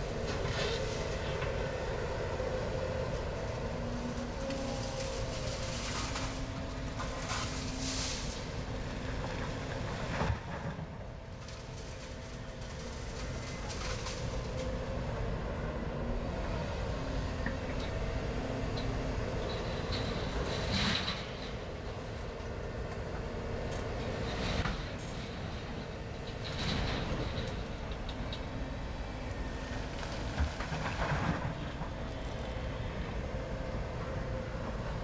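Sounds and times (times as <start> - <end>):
diesel engines rumbling: 0.0 - 35.0.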